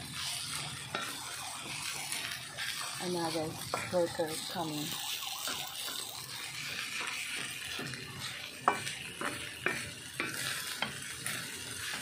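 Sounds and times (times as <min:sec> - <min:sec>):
wooden spatula scraping a wok: 0:00.0 - 0:04.6, 0:05.4 - 0:12.0
rice sizzling in a wok: 0:00.0 - 0:12.0
spatula knocking against pan: 0:08.6 - 0:11.0.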